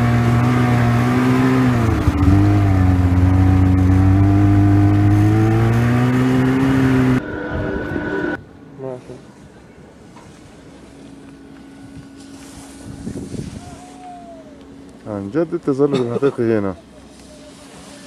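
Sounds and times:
snowmobile engine running: 0:00.0 - 0:08.4.

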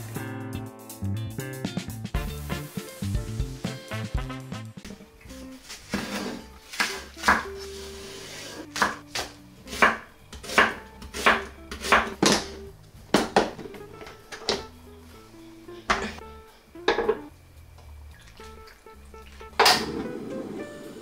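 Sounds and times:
knife chopping on wooden board: 0:05.9 - 0:07.5, 0:08.8 - 0:12.5.

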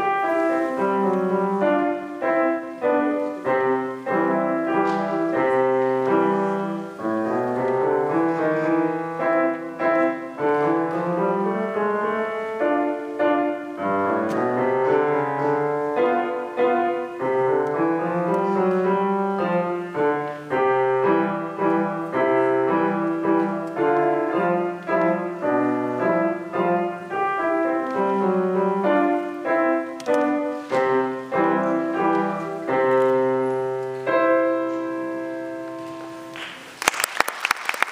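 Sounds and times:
classical piano solo: 0:00.0 - 0:36.8
applause: 0:36.4 - 0:37.9.

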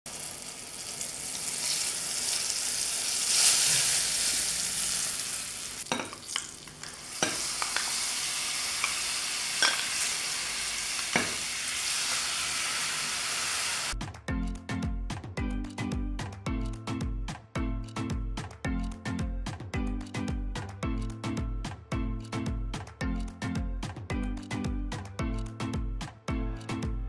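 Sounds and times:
metal spoon clinking on glass: 0:09.6 - 0:10.0
music: 0:13.9 - 0:27.0.

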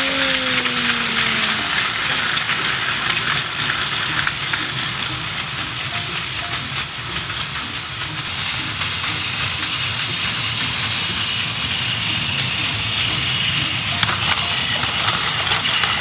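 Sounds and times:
toy train motors whirring: 0:00.0 - 0:16.0
wheels clicking over track joints: 0:00.0 - 0:16.0.

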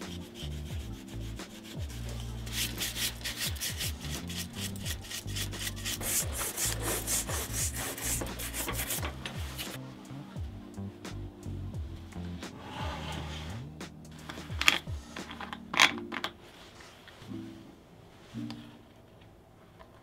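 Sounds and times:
brush buffing leather: 0:00.0 - 0:09.7
cloth rubbing on leather: 0:05.6 - 0:09.8.

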